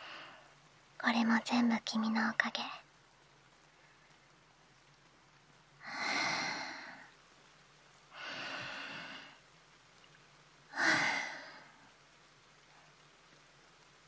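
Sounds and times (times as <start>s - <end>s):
woman breathing deeply: 5.8s - 7.1s, 8.1s - 9.4s, 10.7s - 11.8s.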